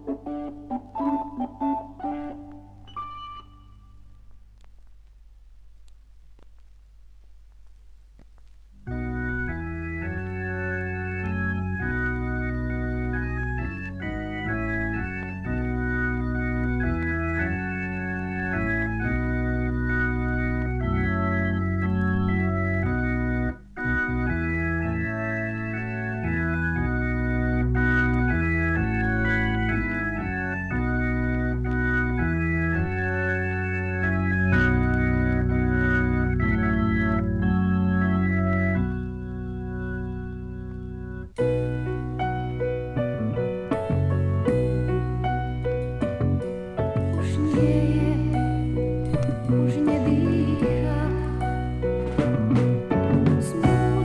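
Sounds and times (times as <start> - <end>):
organ chords from vinyl record: 0.0 - 54.0.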